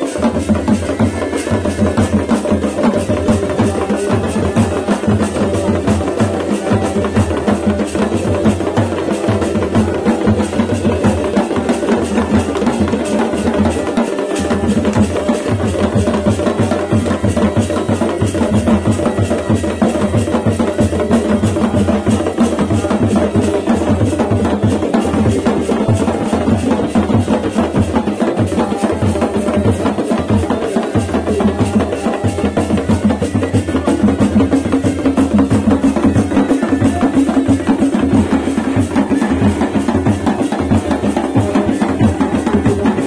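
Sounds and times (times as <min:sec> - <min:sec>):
bagpipe held tones: 0:00.0 - 0:11.0
drums beating fast rhythm: 0:00.0 - 0:43.0.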